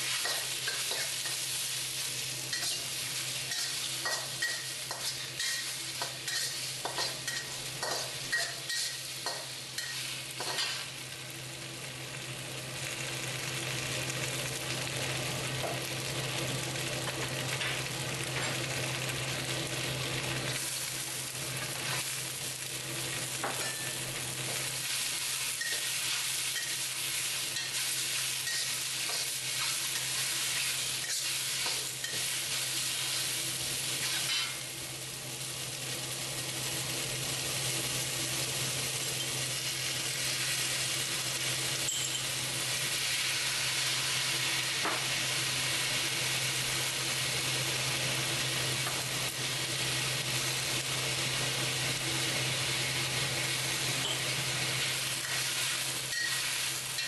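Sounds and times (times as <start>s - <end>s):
noodles sizzling in a wok: 0.0s - 57.0s.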